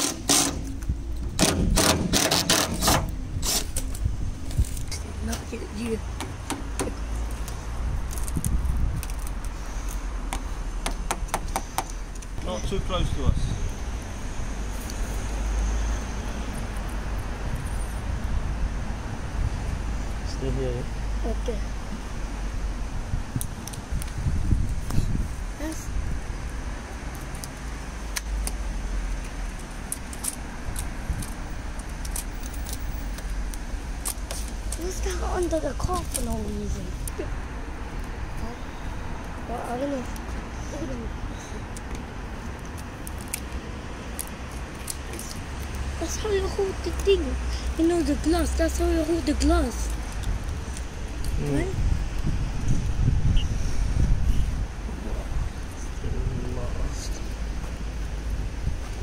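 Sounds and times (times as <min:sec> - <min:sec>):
steady low rumble: 0:03.0 - 0:10.8.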